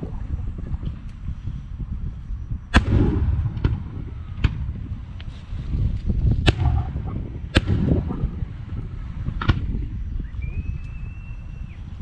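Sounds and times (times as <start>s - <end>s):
low rumble: 0.0s - 12.0s
firework shells bursting: 6.4s - 8.7s.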